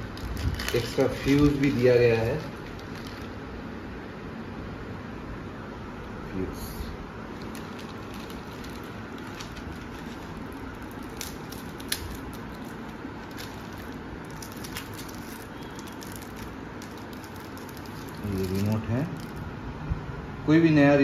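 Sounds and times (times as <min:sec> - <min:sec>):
plastic packet crinkling: 0:00.0 - 0:03.4, 0:07.3 - 0:19.5.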